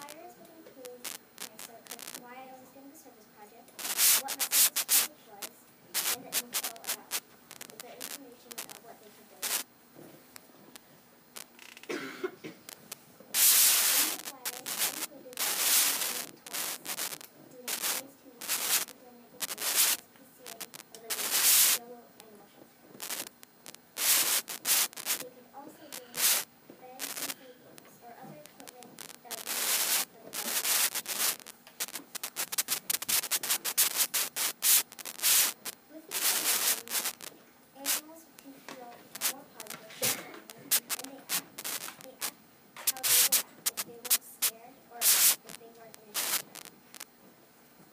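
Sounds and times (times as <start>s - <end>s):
faint voices: 0.0s - 10.8s, 13.3s - 23.3s, 24.0s - 46.7s
loud rubbing swishes: 3.8s - 5.1s
rubbing and scraping: 3.8s - 5.1s, 6.0s - 8.8s, 13.4s - 20.0s, 26.0s - 38.1s, 38.7s - 45.4s, 46.1s - 46.7s.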